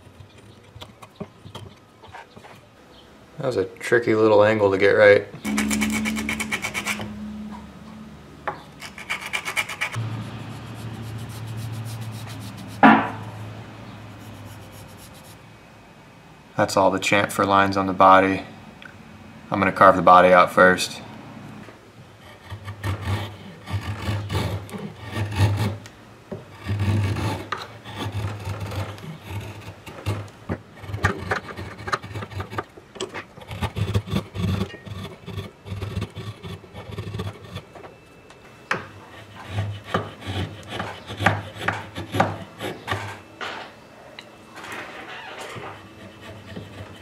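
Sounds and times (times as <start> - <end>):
chisel scraping wood: 5.4 - 7.2, 8.5 - 13.4, 14.2 - 15.4, 22.2 - 25.9, 26.5 - 38.0, 38.8 - 43.2, 45.3 - 47.0.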